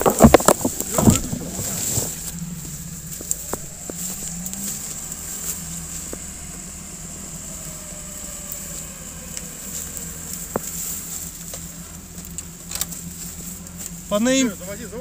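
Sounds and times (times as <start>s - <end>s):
faint falling tone: 0.0s - 11.9s
footsteps in dry leaves: 0.0s - 15.0s
vehicle engine idling: 0.0s - 15.0s.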